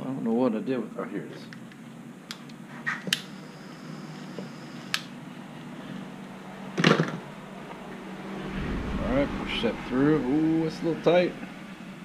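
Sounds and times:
low steady hum: 7.8s - 12.0s.

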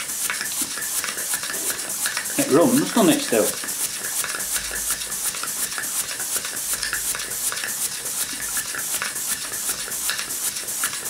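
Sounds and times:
steady steam hiss: 0.0s - 3.9s.

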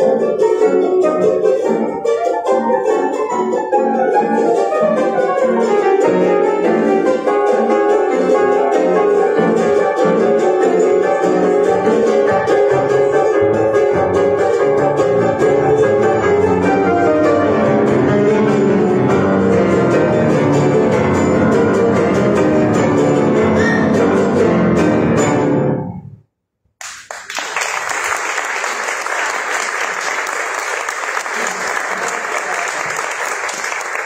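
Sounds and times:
piano and guitar folk music: 0.0s - 25.9s
audience applauding: 26.8s - 34.0s.

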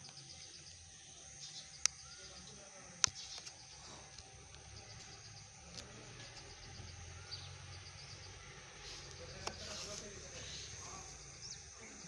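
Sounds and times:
small bird chirps: 0.0s - 12.0s.

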